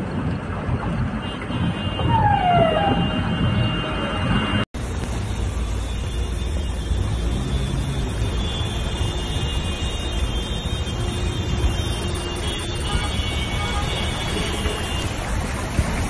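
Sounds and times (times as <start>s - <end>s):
floodwater rushing: 4.8s - 16.0s.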